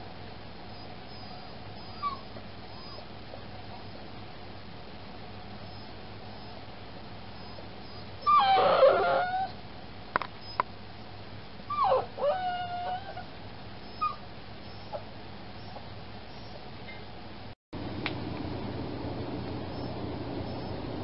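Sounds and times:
puppy whining: 0.7s - 3.1s, 3.7s - 4.0s, 5.6s - 6.6s, 7.4s - 9.6s, 10.4s - 10.6s, 11.7s - 17.0s, 20.5s - 20.8s.

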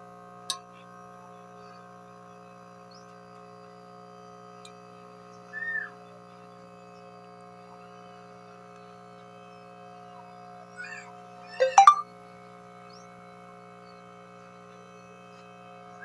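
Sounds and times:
high chirp: 11.6s - 12.0s.

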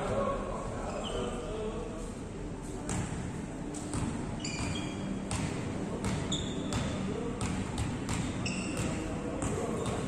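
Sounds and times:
sneaker squeaks on court: 0.8s - 1.4s, 3.8s - 10.0s
volleyballs struck and bouncing: 2.8s - 10.0s.

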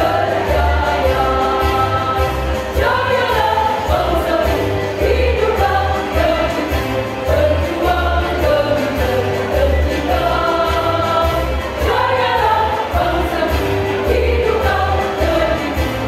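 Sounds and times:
women's choir singing: 0.0s - 16.0s.

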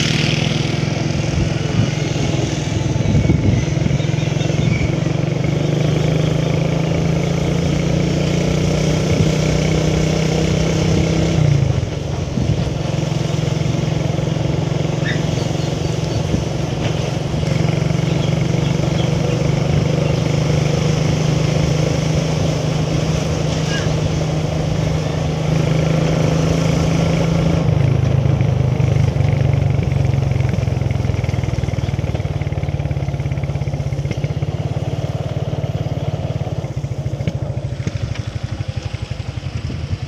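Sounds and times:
small vehicle engine running: 0.0s - 40.0s.

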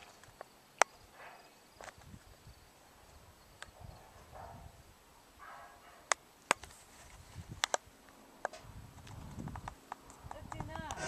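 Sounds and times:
faint low wind rumble: 0.0s - 11.0s
sharp clicks: 8.4s - 11.0s.

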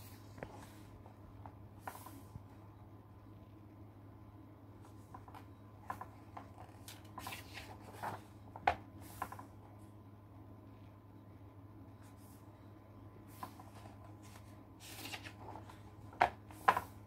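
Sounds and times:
book pages turning: 4.8s - 9.5s, 13.3s - 17.0s
hand tapping pages flat: 5.0s - 9.5s, 13.4s - 17.0s.

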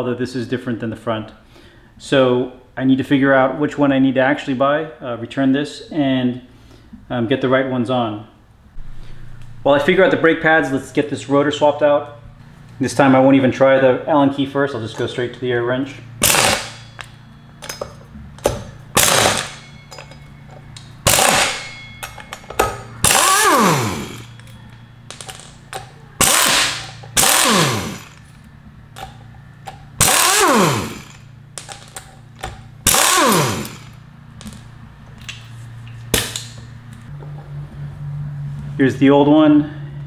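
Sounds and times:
impact wrench hammering: 16.2s - 28.3s, 28.9s - 34.7s
motor whine spinning down: 22.8s - 25.0s.

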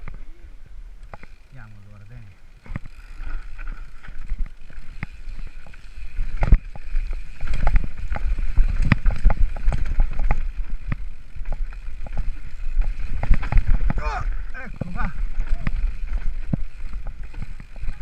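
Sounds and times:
bike frame and chain rattling: 1.1s - 18.0s
wind rumble on microphone: 4.2s - 18.0s.

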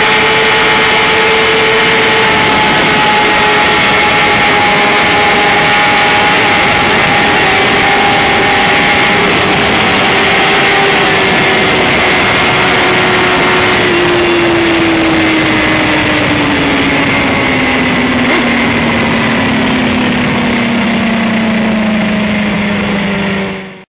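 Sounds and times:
heavy wind rush: 0.0s - 23.8s
motorcycle engine winding down: 0.0s - 23.8s.

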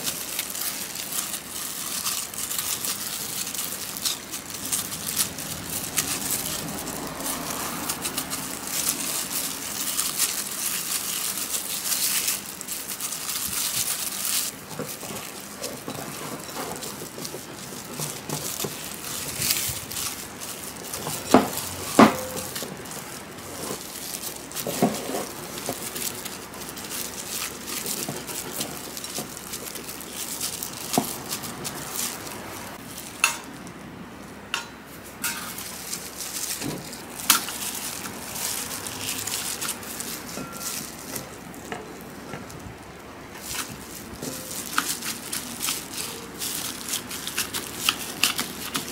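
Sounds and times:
whisk scraping dough in bowl: 0.0s - 32.9s.

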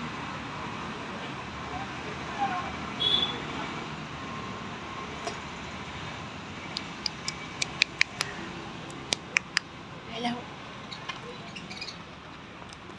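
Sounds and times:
steady background noise: 0.0s - 12.9s
budgerigars chirping: 10.9s - 12.0s.

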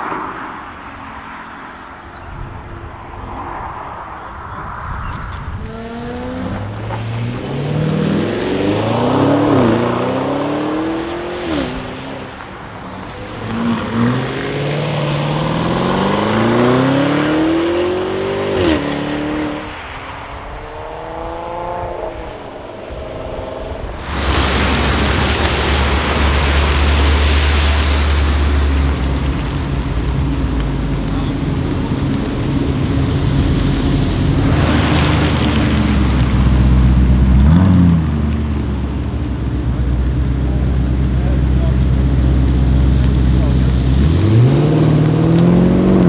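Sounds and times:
car engines accelerating hard: 0.0s - 46.0s
road noise: 0.0s - 46.0s
low engine rumble: 23.6s - 46.0s.

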